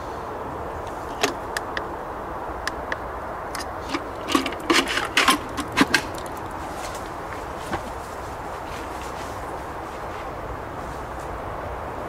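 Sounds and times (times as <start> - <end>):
steady background hiss: 0.0 - 12.0
rattling clicks: 3.5 - 7.2.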